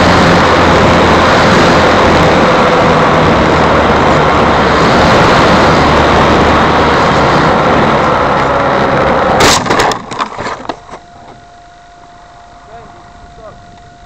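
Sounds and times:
wind rushing: 0.0 - 9.4
model plane motor and propeller: 0.0 - 14.0.

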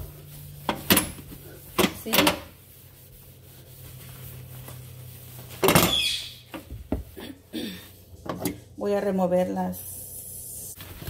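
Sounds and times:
sponge rubbing on stovetop: 0.0 - 7.2.

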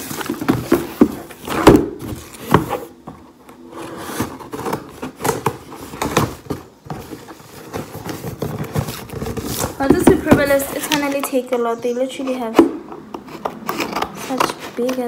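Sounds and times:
packaging rustling: 0.0 - 3.0, 3.6 - 11.5.

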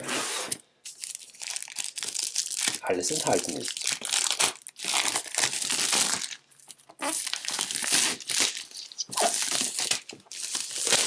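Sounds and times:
plastic wrap crinkling and tearing: 0.8 - 11.0.

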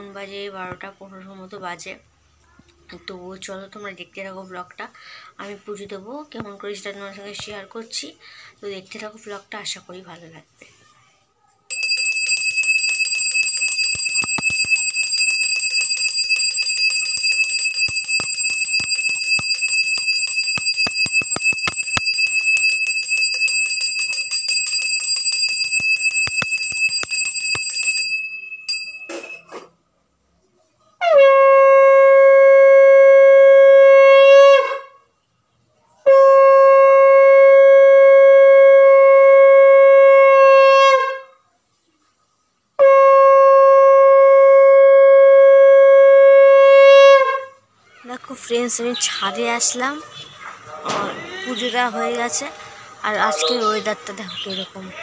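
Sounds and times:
hand bell ringing: 11.7 - 29.5.

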